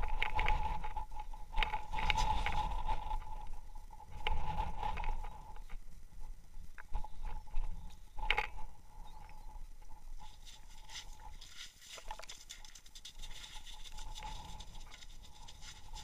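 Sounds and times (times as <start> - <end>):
wind rumbling on microphone: 0.0 - 16.0
taps and crunches on snowy ice: 10.2 - 16.0.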